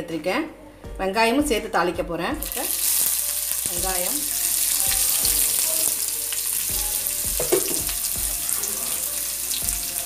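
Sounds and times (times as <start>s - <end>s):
shallots sizzling in hot oil: 2.4s - 10.0s
spatula knocking against pan: 6.8s - 8.4s.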